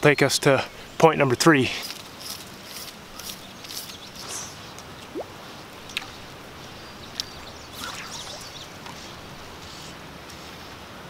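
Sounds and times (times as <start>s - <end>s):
faint steady hiss: 0.0s - 11.0s
short rising chirp: 7.7s - 9.1s.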